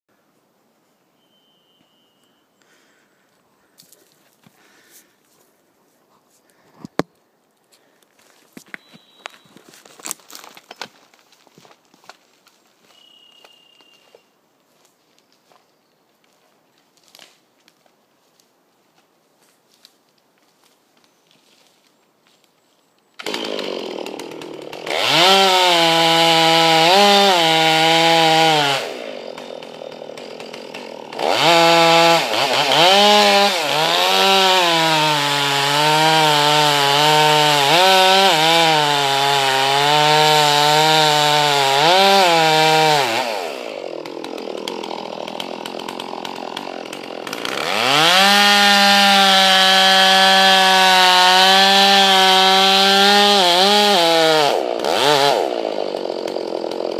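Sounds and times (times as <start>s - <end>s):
chainsaw cutting wood: 23.2s - 56.9s.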